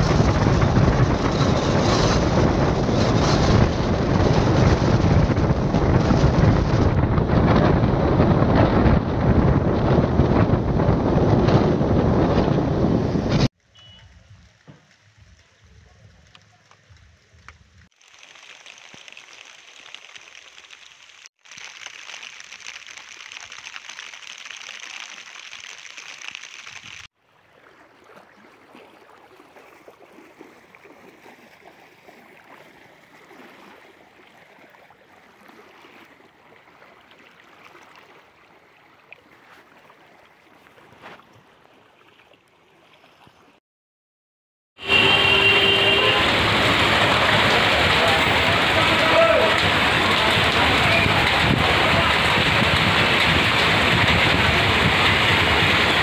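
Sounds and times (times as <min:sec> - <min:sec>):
floodwater rushing: 0:00.0 - 0:43.5, 0:44.8 - 0:56.0.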